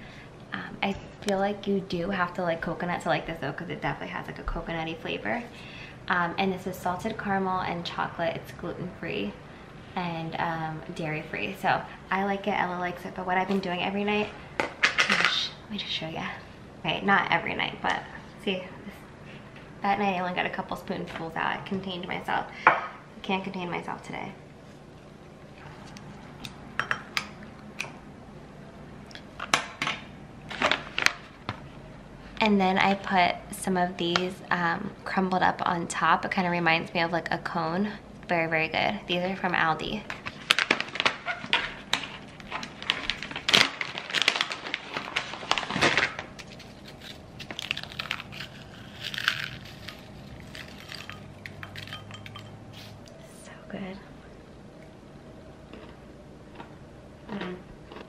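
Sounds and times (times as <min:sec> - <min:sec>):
crisp cookies crushed by fingers: 0:41.9 - 0:52.0
metal scoop clinking against bowl: 0:50.8 - 0:52.6.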